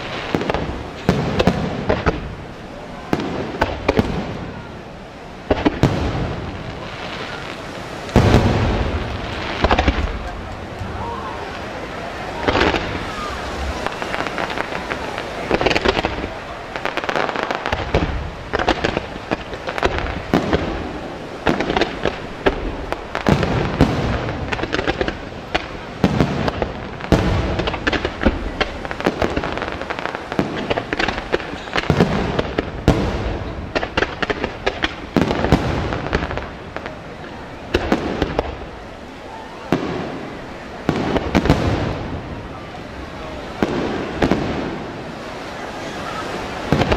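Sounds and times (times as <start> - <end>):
heavy firework booms: 0.0 - 39.0, 39.7 - 46.9
firework shells bursting: 7.3 - 11.0.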